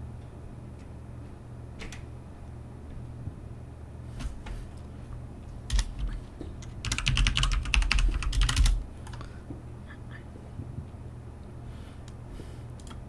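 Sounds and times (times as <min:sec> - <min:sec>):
computer keyboard typing: 0:05.7 - 0:09.2.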